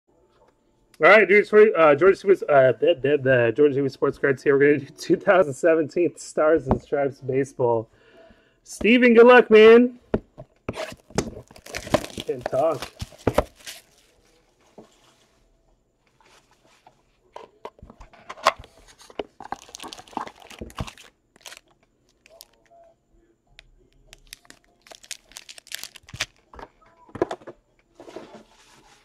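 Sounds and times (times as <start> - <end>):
cardboard box being opened: 10.7 - 14.1
foil card pack crinkling: 10.9 - 14.2, 19.4 - 22.7, 24.1 - 26.5.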